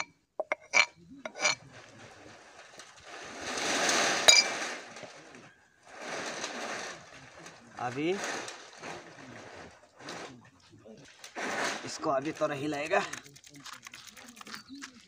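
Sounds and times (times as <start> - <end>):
metal pestle clinking: 0.0 - 1.6.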